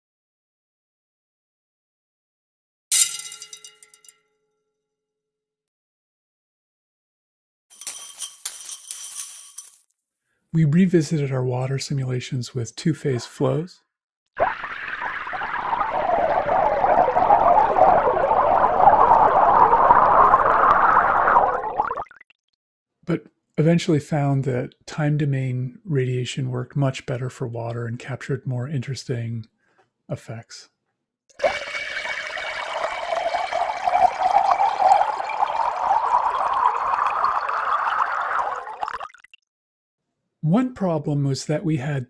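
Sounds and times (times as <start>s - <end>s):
water pouring into tank: 14.4s - 22.2s, 31.3s - 39.4s.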